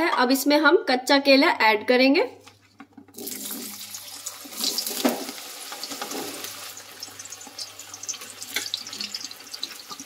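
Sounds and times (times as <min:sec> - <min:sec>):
oil sizzling and crackling: 0:03.2 - 0:10.0.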